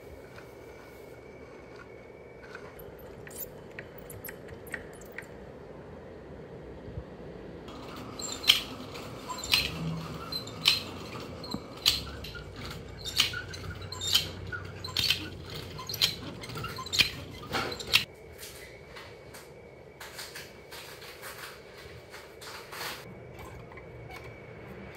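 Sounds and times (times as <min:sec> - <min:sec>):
wooden mechanism clicking and clacking: 0:07.7 - 0:18.1.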